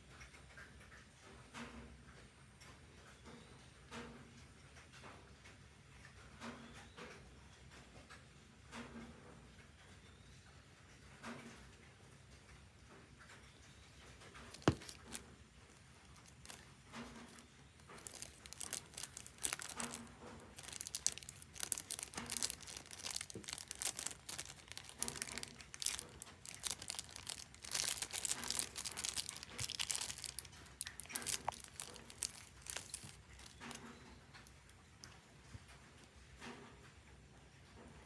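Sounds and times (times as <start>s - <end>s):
plastic bag crinkling: 14.4s - 34.7s.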